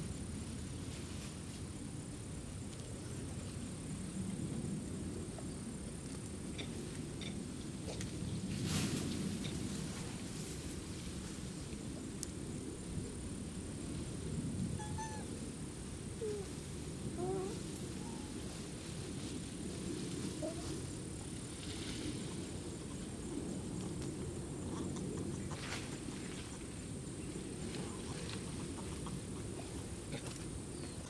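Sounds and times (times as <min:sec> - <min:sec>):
low outdoor rumble: 0:00.0 - 0:31.0
monkey coo calls: 0:14.8 - 0:15.3.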